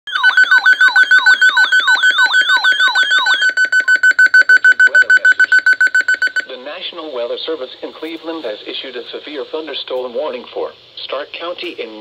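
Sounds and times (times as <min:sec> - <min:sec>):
falling electronic alert sweep: 0:00.1 - 0:06.5
rapid steady-pitched beeping: 0:00.1 - 0:06.6.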